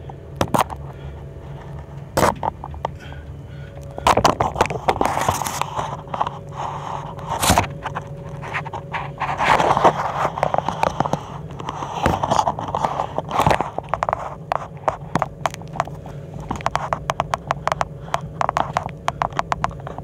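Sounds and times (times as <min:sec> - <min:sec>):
low hum: 0:00.0 - 0:20.0
scraping and rustling: 0:01.4 - 0:20.0
sharp clicks and taps: 0:16.5 - 0:20.0.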